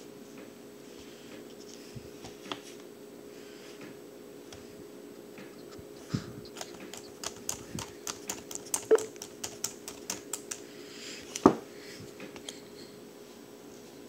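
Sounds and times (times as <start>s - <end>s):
laptop keys clicking: 6.4s - 10.6s.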